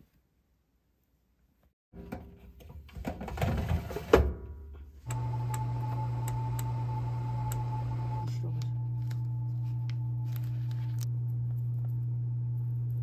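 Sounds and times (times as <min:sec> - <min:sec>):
electric oven humming: 0:05.1 - 0:13.0.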